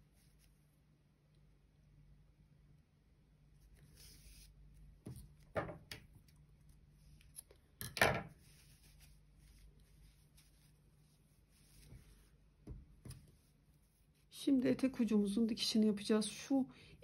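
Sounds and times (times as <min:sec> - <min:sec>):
rustling of knitted fabric: 0:00.0 - 0:00.9, 0:03.4 - 0:07.4, 0:08.3 - 0:16.6.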